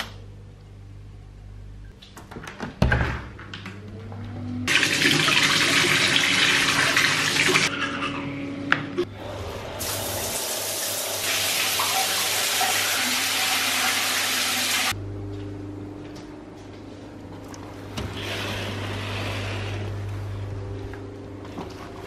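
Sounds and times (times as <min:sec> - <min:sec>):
tap water running into basin: 0:04.7 - 0:07.7, 0:09.8 - 0:14.9
shower water running: 0:04.7 - 0:08.2, 0:09.3 - 0:15.0.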